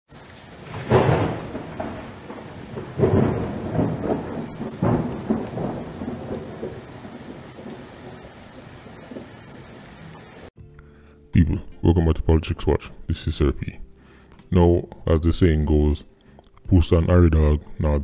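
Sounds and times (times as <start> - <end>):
thunderclaps rumbling: 0.1 - 10.5
steady rain hiss: 0.1 - 10.6.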